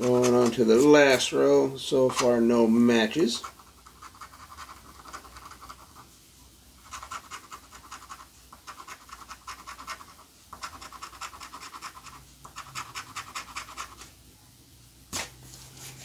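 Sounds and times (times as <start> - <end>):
coin scratching lottery ticket: 0.0 - 1.2, 3.3 - 6.1, 6.8 - 14.1.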